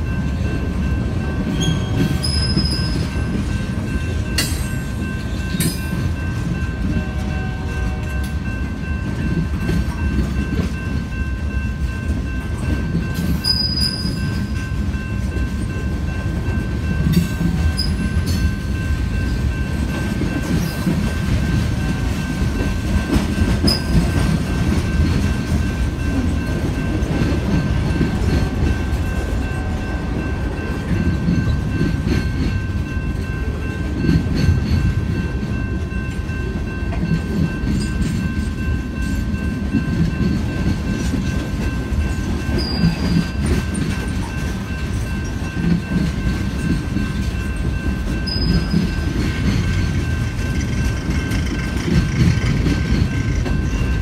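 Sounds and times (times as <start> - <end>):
train cars rumbling: 0.0 - 54.0
wheels clacking over rail joints: 12.1 - 54.0.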